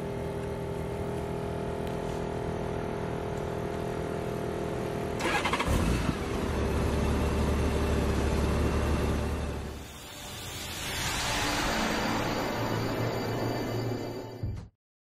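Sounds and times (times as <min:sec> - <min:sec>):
motorcycle starter cranking: 0:05.2 - 0:05.9
steady hum: 0:09.4 - 0:14.4.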